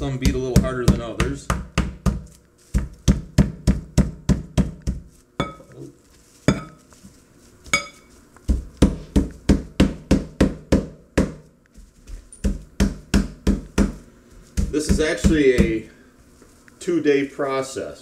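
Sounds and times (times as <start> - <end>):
metal mallet beating meat: 0.0 - 5.7, 7.8 - 11.5, 12.4 - 15.8.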